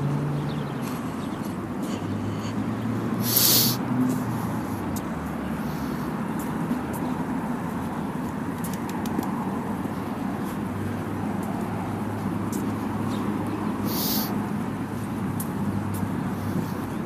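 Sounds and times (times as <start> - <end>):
street traffic engine hum: 0.0 - 17.0
short hiss: 3.2 - 3.8, 13.9 - 14.3.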